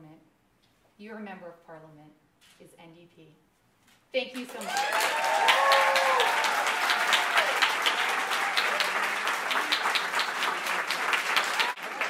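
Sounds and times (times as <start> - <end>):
audience applauding: 4.5 - 12.0.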